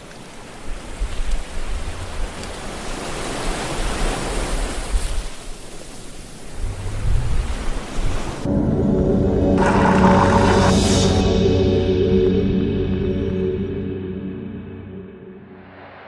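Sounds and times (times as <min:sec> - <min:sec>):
sea waves surging: 0:00.0 - 0:11.4
deep low rumble: 0:06.6 - 0:07.7, 0:08.5 - 0:16.0.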